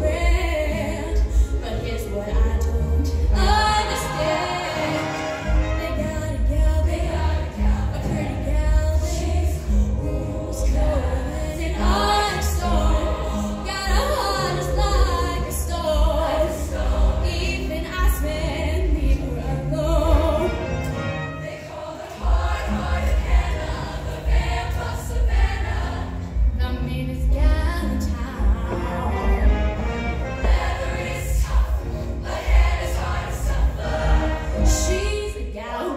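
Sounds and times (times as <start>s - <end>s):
choir singing: 0.0s - 26.5s, 28.1s - 35.9s
live band playing: 28.2s - 30.8s.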